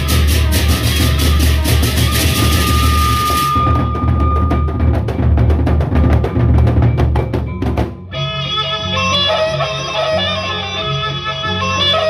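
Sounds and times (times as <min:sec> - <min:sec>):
drum ensemble playing: 0:00.0 - 0:08.2
pitched melody line: 0:00.0 - 0:12.0.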